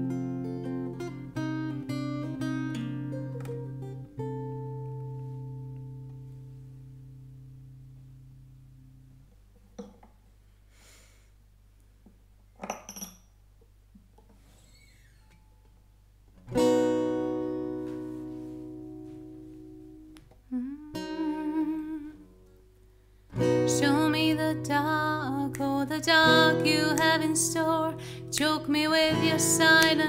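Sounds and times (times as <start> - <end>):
acoustic guitar chords: 0.0 - 9.3, 16.4 - 30.0.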